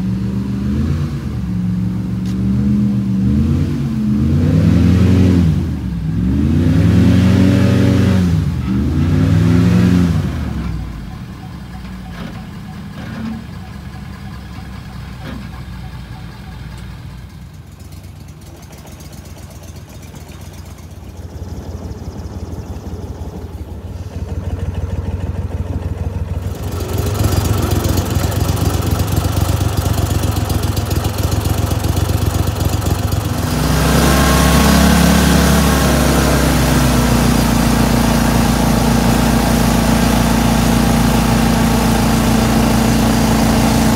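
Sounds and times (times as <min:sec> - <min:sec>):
truck engine revving and idling: 0:00.0 - 0:43.9
boat motor running hard: 0:26.4 - 0:43.9.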